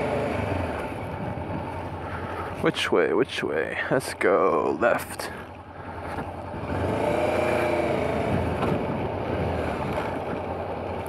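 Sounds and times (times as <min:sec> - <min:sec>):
motorcycle engine pulling away: 0:00.0 - 0:01.6, 0:06.0 - 0:11.0.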